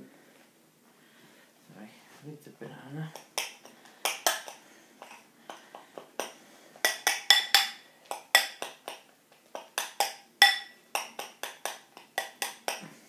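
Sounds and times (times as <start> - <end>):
utensil clinking on glass bowl: 6.2 - 9.0, 9.6 - 12.8.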